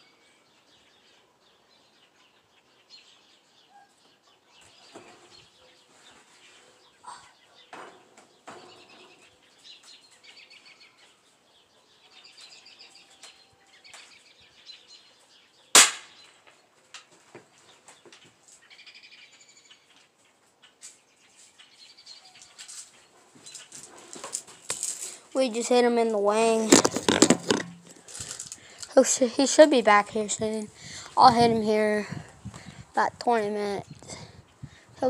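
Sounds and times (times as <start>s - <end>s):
small birds chirping: 0.0s - 35.0s
loud gunshot: 15.8s - 16.2s.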